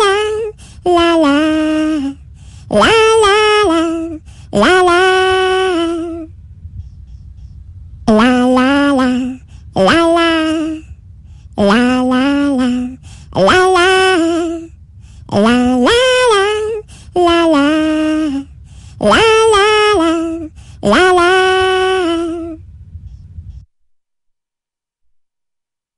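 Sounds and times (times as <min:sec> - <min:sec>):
woman singing unaccompanied: 0:00.0 - 0:06.4, 0:08.0 - 0:10.9, 0:11.5 - 0:22.6.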